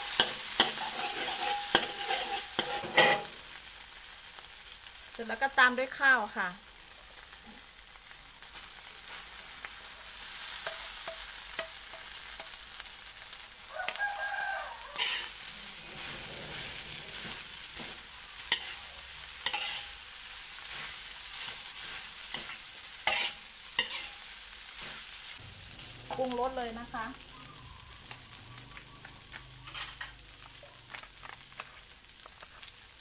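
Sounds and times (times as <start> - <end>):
spatula clacking against wok: 0.0 - 3.3, 10.6 - 12.6
metal spatula scraping wok: 0.0 - 3.4, 14.8 - 26.6, 29.2 - 30.5
rice sizzling in a wok: 0.0 - 33.0.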